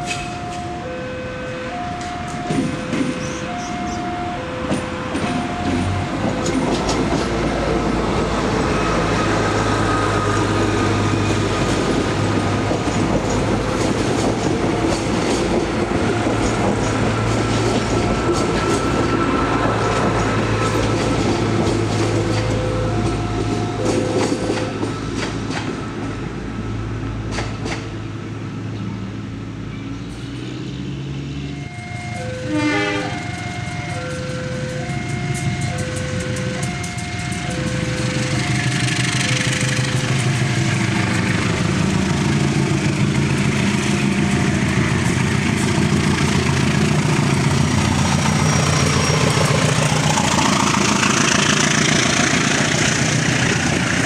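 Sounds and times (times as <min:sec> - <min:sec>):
two-tone warning signal beeping: 0:00.0 - 0:11.7, 0:22.0 - 0:26.3, 0:31.5 - 0:41.6
diesel train engine drone: 0:00.0 - 0:54.0
train wheels clicking over rail joints: 0:01.9 - 0:26.3, 0:27.0 - 0:28.0, 0:33.1 - 0:54.0
train horn: 0:32.3 - 0:33.7.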